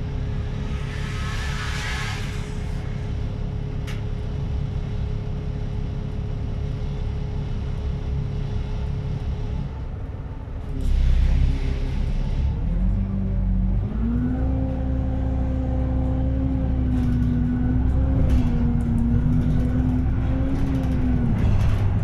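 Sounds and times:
bus engine rumble and whine: 0.0 - 22.0.

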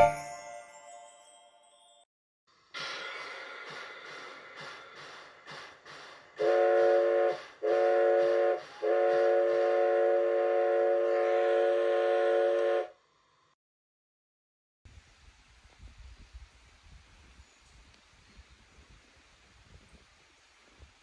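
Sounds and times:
steam whistle chord blasts: 0.0 - 0.2, 6.4 - 12.9
steam locomotive puffing: 2.8 - 10.8.

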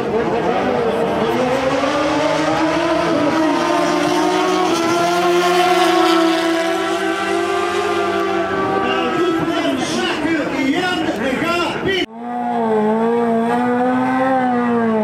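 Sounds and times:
motorcycle engine revving hard: 0.4 - 9.5, 12.1 - 15.0.

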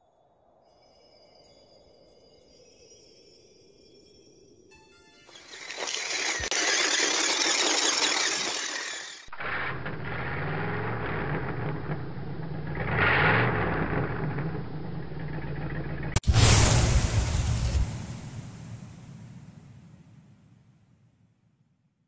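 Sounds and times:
motor vehicle engine running: 5.3 - 16.2
loud rushing noise: 16.2 - 19.7
loud whoosh: 16.2 - 20.0.

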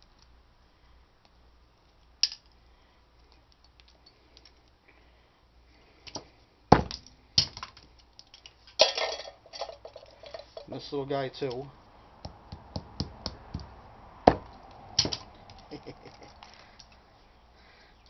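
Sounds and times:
wire clattering into tin can: 7.0 - 10.7.

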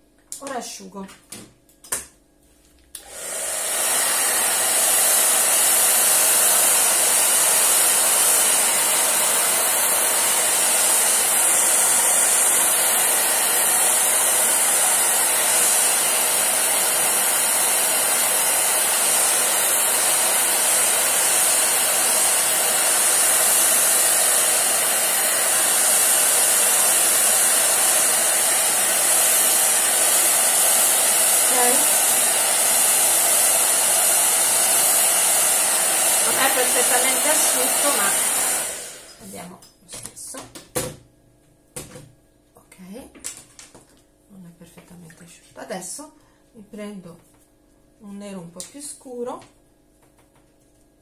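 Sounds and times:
hair dryer blowing: 3.0 - 39.4.

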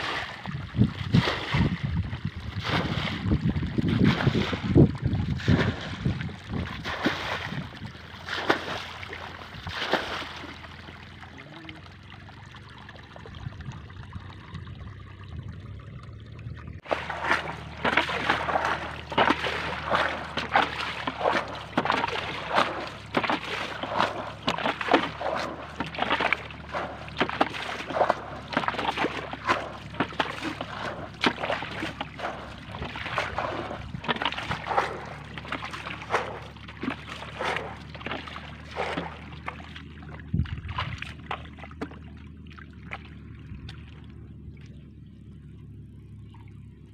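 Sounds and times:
pond water splashing: 0.0 - 46.9.

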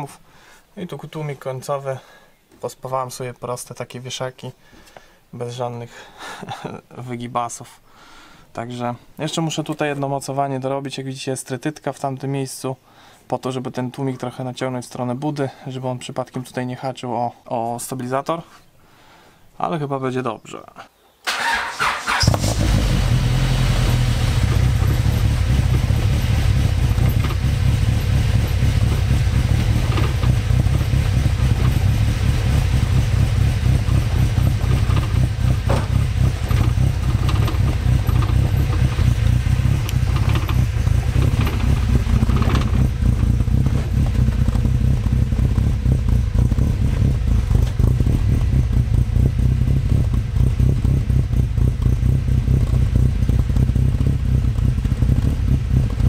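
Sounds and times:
car engine idling: 22.2 - 56.0.

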